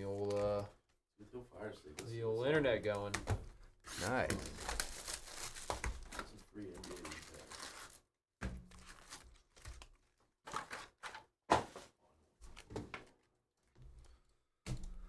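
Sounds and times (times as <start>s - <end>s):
card packs thudding and rustling: 4.0s - 8.0s, 8.6s - 9.9s, 10.5s - 11.9s.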